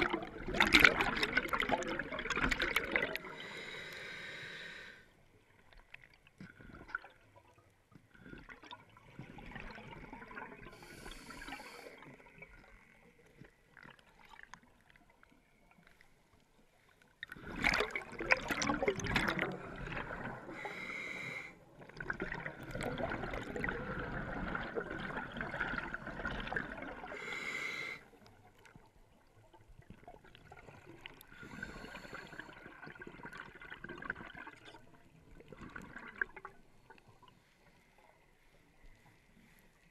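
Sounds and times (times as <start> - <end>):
bubbling exhalation underwater: 0.0 - 3.4, 17.3 - 20.7, 21.8 - 27.3
regulator hissing breaths: 3.4 - 5.1, 10.8 - 12.0, 20.6 - 21.6, 27.2 - 28.1.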